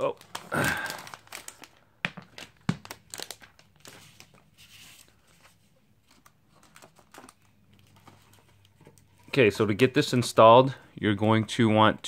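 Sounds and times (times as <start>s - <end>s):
plastic wrap crinkling: 0.0s - 9.4s.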